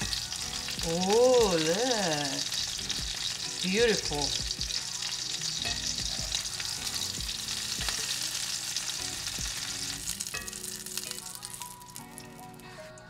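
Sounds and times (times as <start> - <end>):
chicken sizzling in oil: 0.0 - 13.0.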